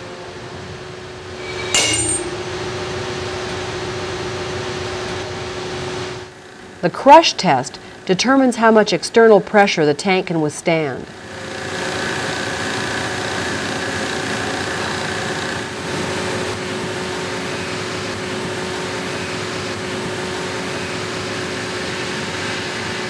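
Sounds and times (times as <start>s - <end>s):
hydraulic press humming and whining: 11.1s - 23.0s.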